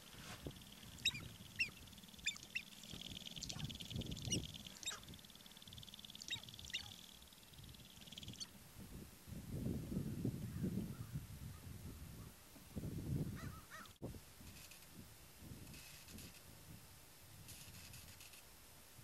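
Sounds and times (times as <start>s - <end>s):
fast buzzing rattle: 0.0s - 8.5s
grouse chirping: 0.0s - 8.6s.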